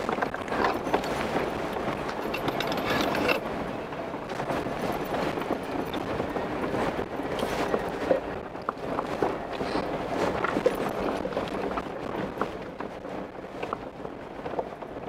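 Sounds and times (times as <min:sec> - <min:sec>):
vehicle engine and tyres rumbling: 0:00.0 - 0:15.0
rattles: 0:00.1 - 0:03.4.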